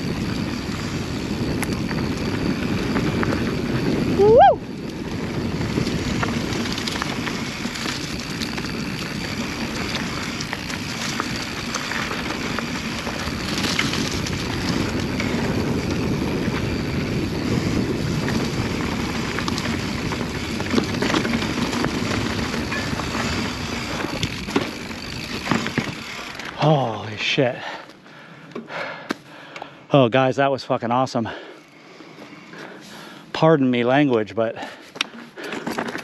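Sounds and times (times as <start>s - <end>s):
wind rush on microphone: 0.0s - 26.0s
tyre noise on dirt: 0.0s - 27.7s
bike clicks and rattles: 0.0s - 29.8s, 31.3s - 36.0s.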